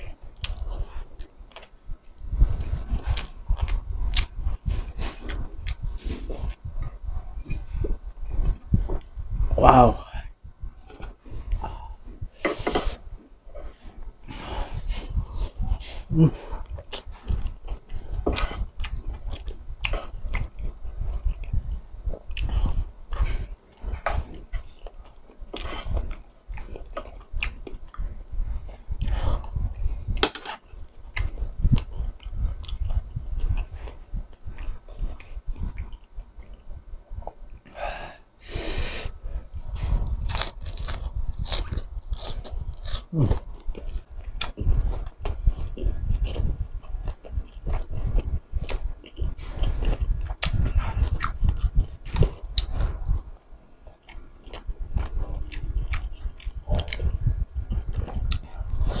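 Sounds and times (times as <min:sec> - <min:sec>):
crunchy chewing: 0:00.0 - 0:09.1, 0:14.6 - 0:37.8, 0:39.5 - 0:59.0
mouth sounds: 0:15.6 - 0:17.6.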